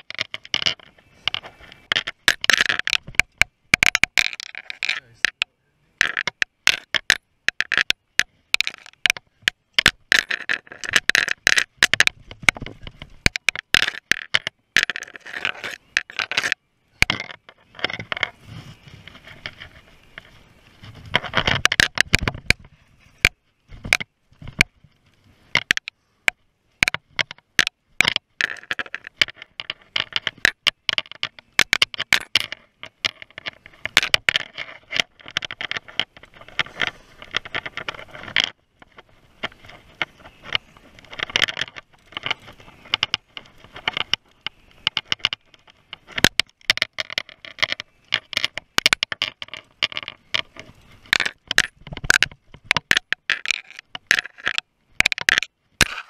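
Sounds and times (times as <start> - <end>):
mountain bike rattling on dirt trail: 34.8 - 54.4.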